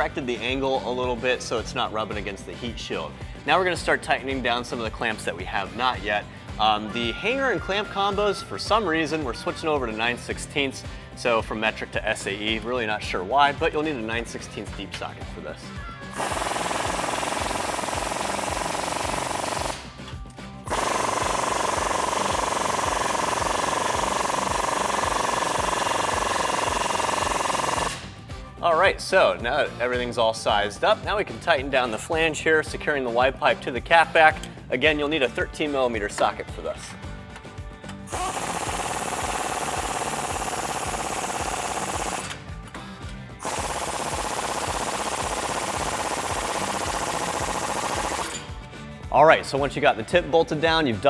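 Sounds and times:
impact wrench rattling: 16.2s - 20.1s, 20.7s - 28.1s, 38.1s - 42.7s, 43.4s - 48.5s.

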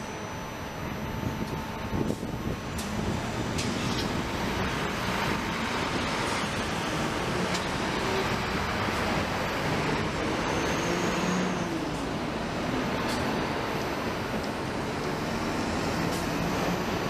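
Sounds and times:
faint high whine: 0.0s - 3.3s
cars and buses passing: 0.0s - 17.0s.

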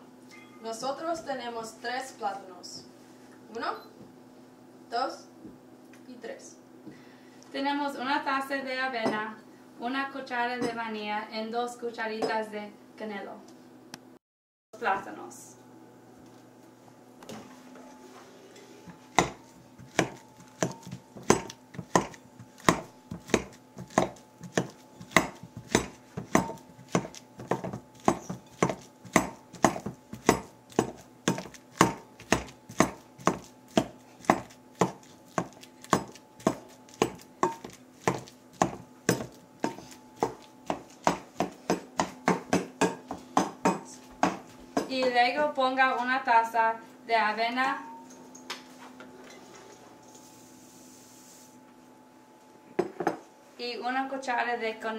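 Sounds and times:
potato masher knocking bowl: 18.9s - 45.0s.

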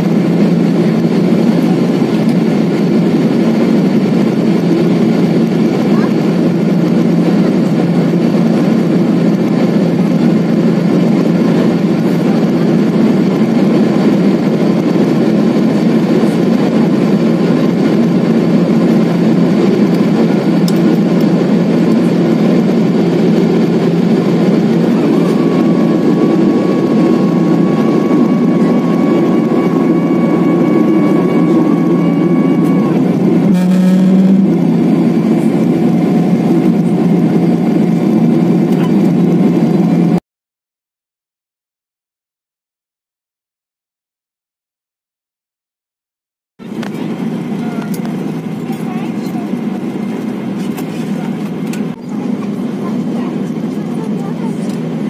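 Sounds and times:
jet engine drone in cabin: 0.0s - 40.2s, 46.6s - 55.0s
faint high whine: 21.9s - 35.8s.

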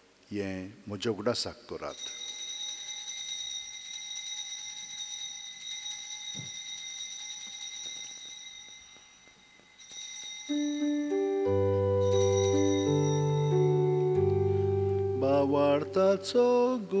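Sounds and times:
altar bell ringing: 1.9s - 16.5s
keyboard playing sustained chords: 10.5s - 16.9s.

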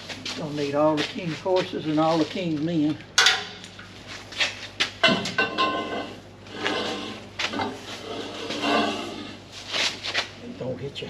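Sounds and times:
wrench and pipe clanking: 3.2s - 3.6s, 5.0s - 6.2s.

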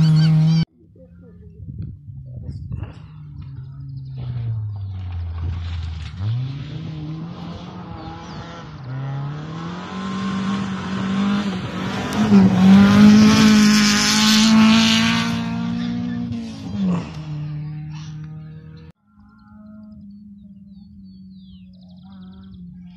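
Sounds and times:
rally car engine revving: 0.0s - 0.7s, 2.7s - 18.9s
tyres on gravel: 2.8s - 6.8s.

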